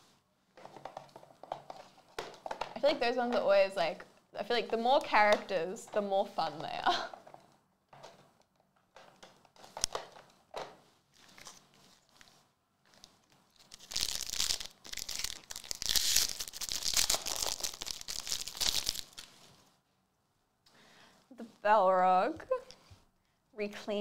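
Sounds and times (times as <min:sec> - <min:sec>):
foil wrapper tearing and crinkling: 0:13.5 - 0:19.4.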